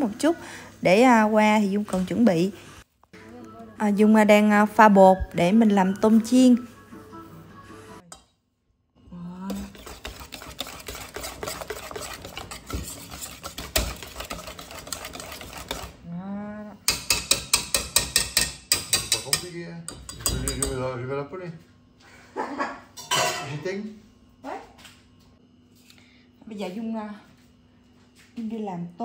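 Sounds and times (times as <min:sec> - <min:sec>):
whisk beating batter in bowl: 0:09.5 - 0:16.0
whisk wires clinking on bowl: 0:16.9 - 0:20.8.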